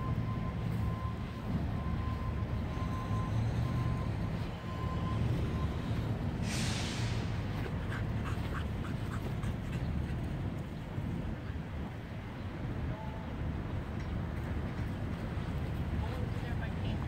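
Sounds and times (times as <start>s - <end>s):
dog panting: 7.5s - 10.4s.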